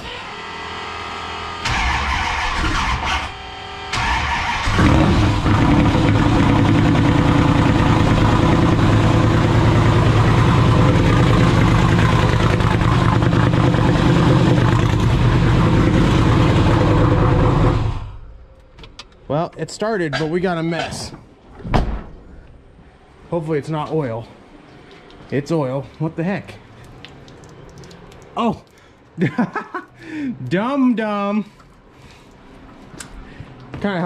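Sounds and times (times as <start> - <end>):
engine running loud: 1.0 - 18.2
starter motor cranking: 1.6 - 7.3.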